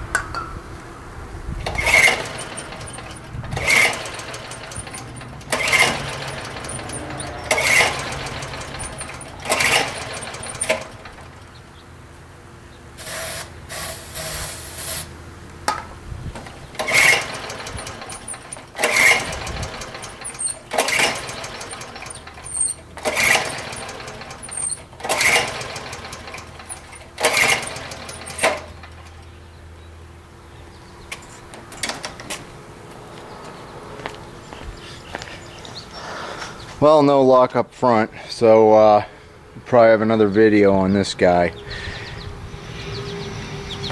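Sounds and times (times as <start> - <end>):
engine turning over: 1.5 - 11.8, 16.3 - 29.4, 30.8 - 32.5
recoil starter pulls: 1.6 - 11.6, 16.3 - 29.3, 31.1 - 32.5
starter fluid spray hisses: 13.0 - 15.1.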